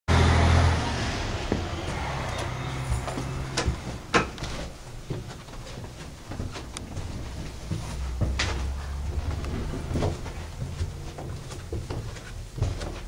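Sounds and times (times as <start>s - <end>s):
footsteps in a stairwell: 1.4s - 13.0s
low rumble: 7.6s - 11.9s.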